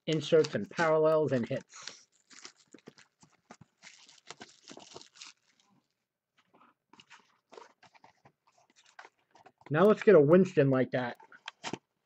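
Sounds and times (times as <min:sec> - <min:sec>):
cards rustling and clicking: 0:00.1 - 0:05.6, 0:06.9 - 0:10.2.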